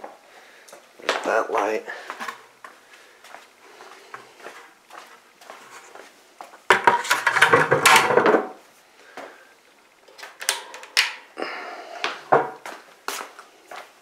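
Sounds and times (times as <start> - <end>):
knocks and clicks of handled objects: 6.7 - 8.5.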